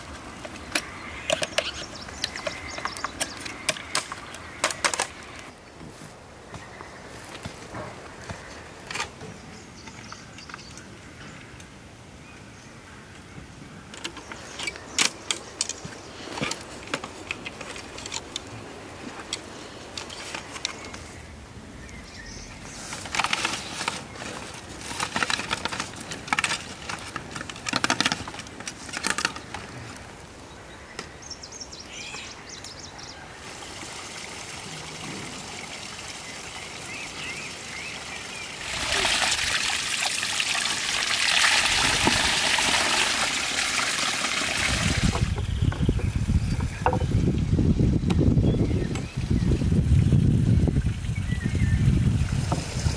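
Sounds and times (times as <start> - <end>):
canes rustling and scraping: 14.0 - 21.1, 22.7 - 30.0
water pouring off stone spout: 33.4 - 45.5.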